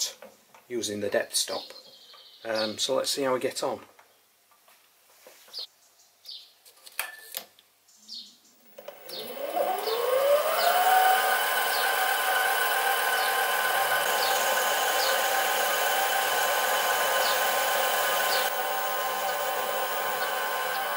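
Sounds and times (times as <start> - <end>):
lathe motor whine: 8.7 - 20.9.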